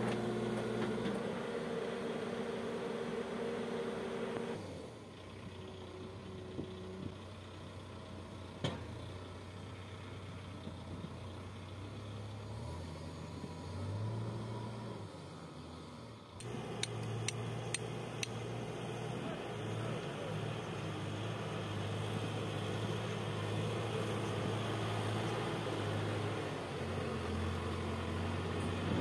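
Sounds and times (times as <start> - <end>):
diesel engine running: 0.0 - 29.0
sharp clicks: 16.4 - 18.4.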